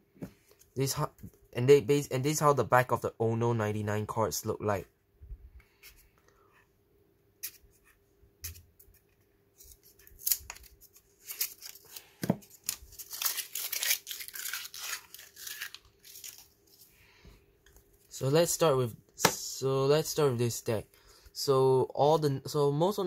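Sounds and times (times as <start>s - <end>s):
playing cards handled: 8.4s - 16.9s
paper wrapper tearing: 9.6s - 16.9s.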